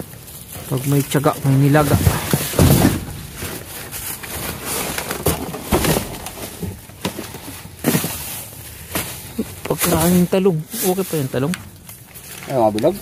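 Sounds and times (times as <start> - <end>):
plastic bags crinkling: 0.0 - 13.0
sharp knocks: 1.8 - 3.5.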